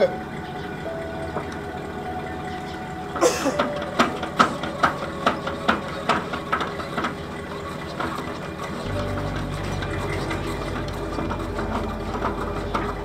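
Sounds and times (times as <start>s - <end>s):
steady hum: 0.0s - 13.0s
jack crank clicking metallically: 3.1s - 13.0s.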